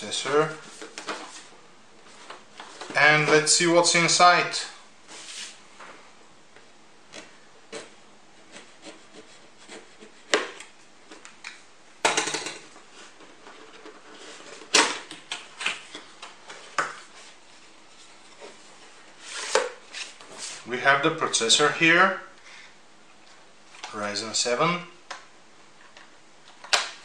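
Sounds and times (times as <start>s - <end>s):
cardboard rasp: 7.7s - 10.6s.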